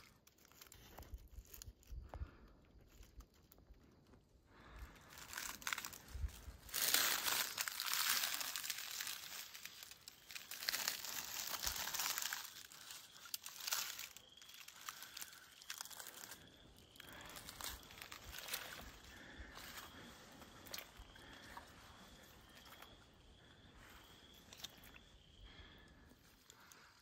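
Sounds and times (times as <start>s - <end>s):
dry leaves rustling and crunching: 5.0s - 20.1s.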